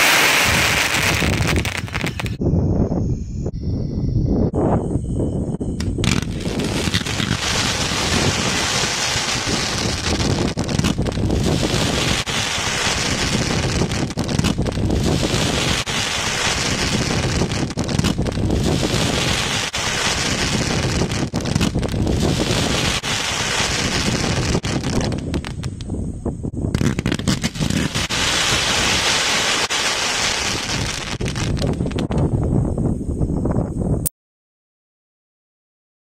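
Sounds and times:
fireworks popping and crackling: 0:00.0 - 0:02.4, 0:05.8 - 0:25.9, 0:26.7 - 0:32.4
wind buffeting microphone: 0:00.0 - 0:34.1.

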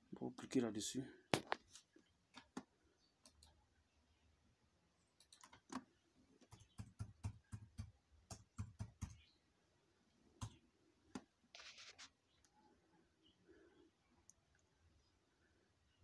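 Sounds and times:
brief rustle: 0:11.5 - 0:12.2.

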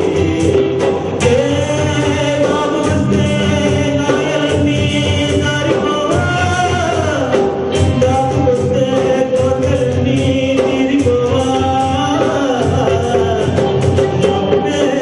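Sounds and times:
instrumental music with steady beat: 0:00.0 - 0:15.0
man singing into a microphone: 0:00.0 - 0:15.0.

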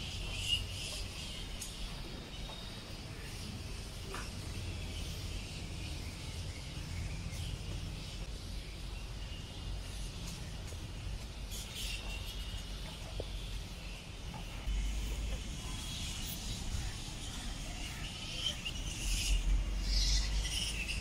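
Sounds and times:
birds chirping: 0:00.0 - 0:21.0
insects calling: 0:00.0 - 0:21.0
low rumble: 0:14.7 - 0:18.1.

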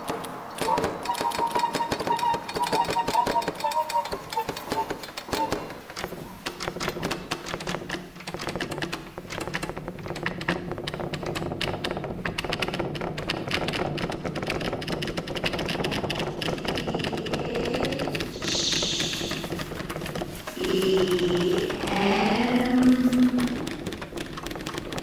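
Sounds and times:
tapping on laptop keyboard: 0:00.1 - 0:18.3, 0:22.6 - 0:25.0
steady low hum: 0:16.1 - 0:24.2.

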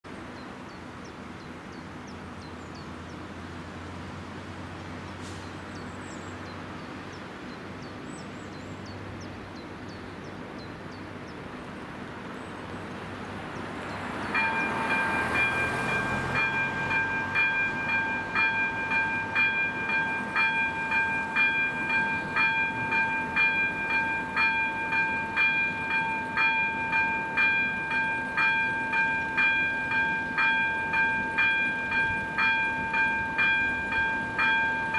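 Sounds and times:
car driving over crossing: 0:13.5 - 0:20.7
level crossing warning bell: 0:13.9 - 0:34.9.

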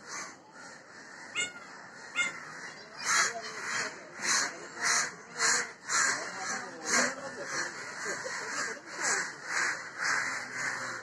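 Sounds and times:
crow cawing: 0:00.0 - 0:11.0.

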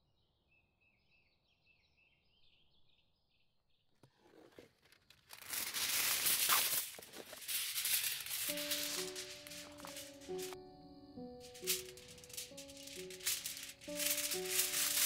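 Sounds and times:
loud crackling rustling: 0:04.3 - 0:10.6, 0:11.2 - 0:15.0.

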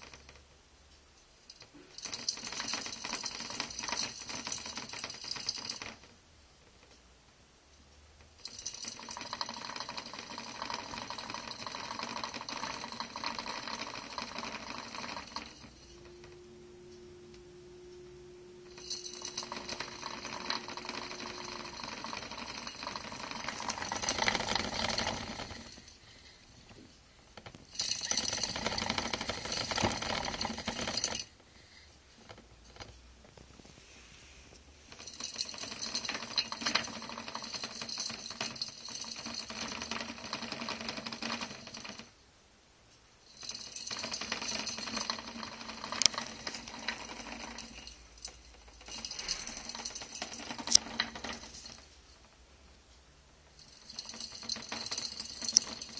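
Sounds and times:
plastic hamster wheel whirring: 0:01.9 - 0:06.2, 0:08.4 - 0:17.4, 0:18.6 - 0:26.0, 0:26.6 - 0:31.3, 0:34.8 - 0:42.1, 0:43.3 - 0:52.4, 0:53.6 - 0:55.9.

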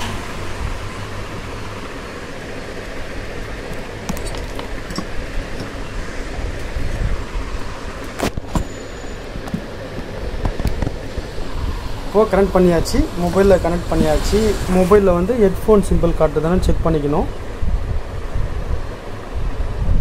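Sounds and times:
handling noise: 0:03.4 - 0:07.1, 0:08.0 - 0:11.4.

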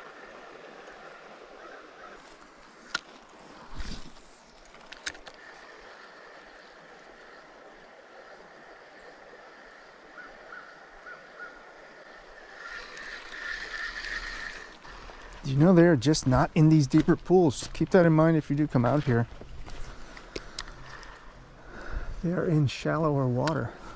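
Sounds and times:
creek water running: 0:00.0 - 0:23.9.

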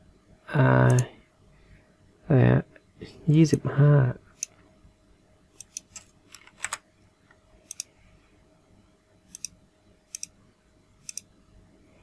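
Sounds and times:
mouse and keyboard clicks: 0:05.6 - 0:06.8, 0:07.7 - 0:07.9, 0:09.3 - 0:10.4, 0:11.0 - 0:11.3.

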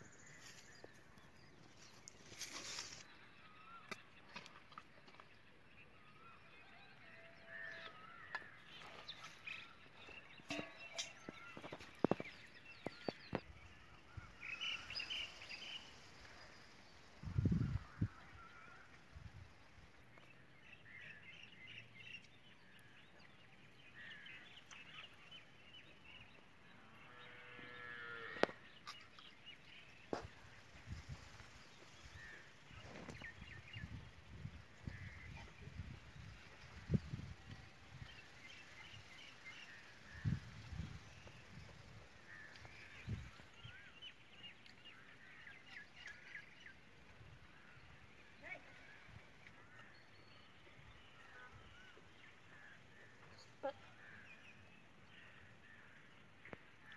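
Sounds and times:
faint outdoor background: 0:00.0 - 0:56.9.

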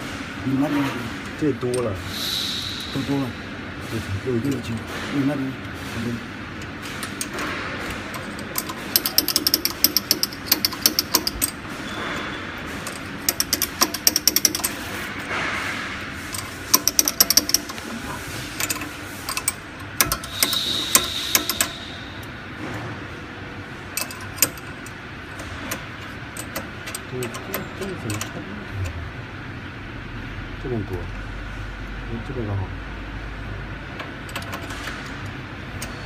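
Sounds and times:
ratchet wrench clicking: 0:06.6 - 0:11.6, 0:12.8 - 0:15.3, 0:16.2 - 0:22.4, 0:23.9 - 0:28.4.

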